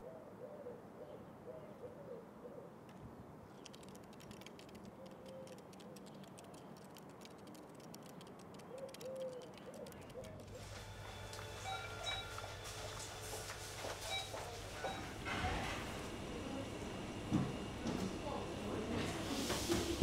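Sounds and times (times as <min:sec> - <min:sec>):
dove cooing: 0:00.0 - 0:02.8, 0:08.6 - 0:10.7
faint rapid clicking: 0:03.5 - 0:10.5
indoor hum: 0:10.1 - 0:20.0.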